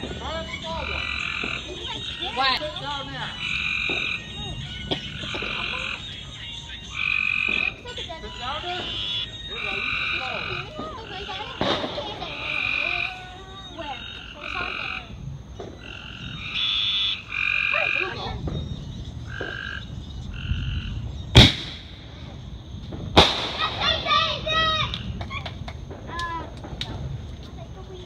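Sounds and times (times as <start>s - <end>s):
frogs trilling: 0.0s - 28.0s
firework bang: 10.7s - 12.6s, 21.3s - 27.3s.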